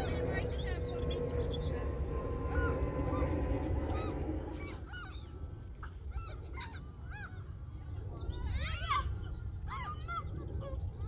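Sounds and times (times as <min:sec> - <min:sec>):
gulls calling: 0:00.0 - 0:11.0
low steady rumble: 0:00.0 - 0:11.0.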